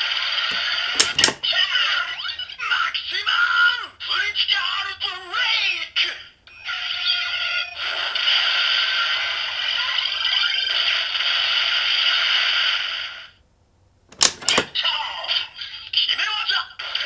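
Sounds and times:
sharp plastic clacks of lever: 1.0s - 1.4s, 14.1s - 14.7s.

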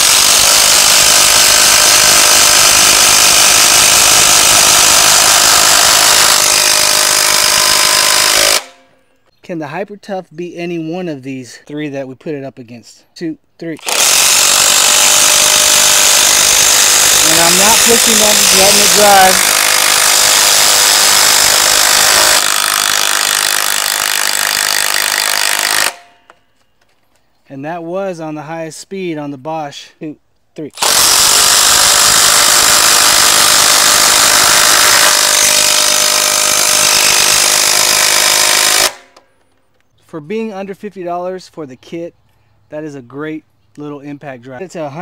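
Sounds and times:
impact drivers hammering screws: 0.0s - 8.8s, 13.8s - 26.1s, 30.8s - 39.4s.

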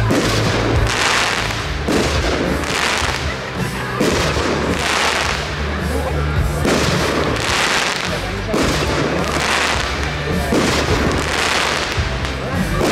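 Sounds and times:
firework crackle: 0.0s - 12.9s
music: 0.0s - 12.9s.

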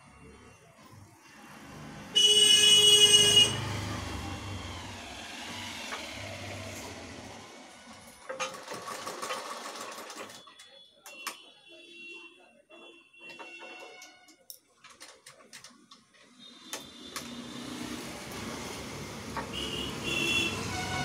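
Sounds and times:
vehicle horn blast: 2.2s - 3.8s, 19.5s - 21.0s
sewing machine clicking: 8.2s - 10.7s.

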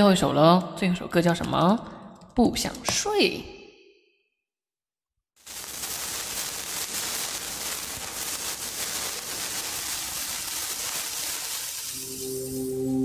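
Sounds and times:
steady static hiss: 5.4s - 12.8s.

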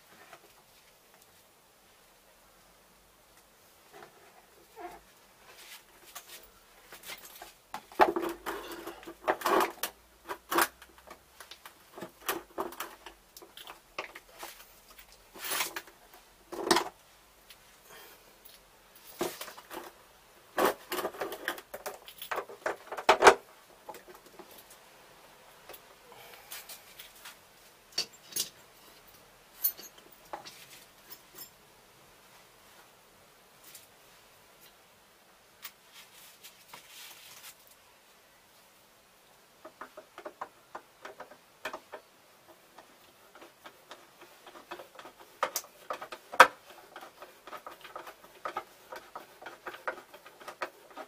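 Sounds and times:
hand tool scraping and tapping: 39.6s - 51.0s.

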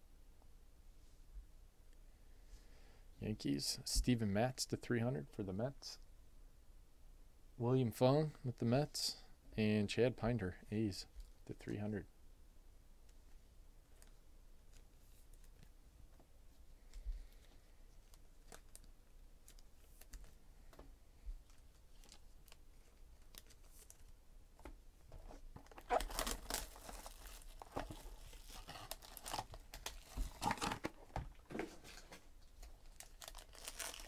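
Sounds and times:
foil pack crinkling: 25.7s - 31.0s, 31.8s - 34.0s
box tearing open: 25.8s - 27.4s, 30.3s - 30.9s.

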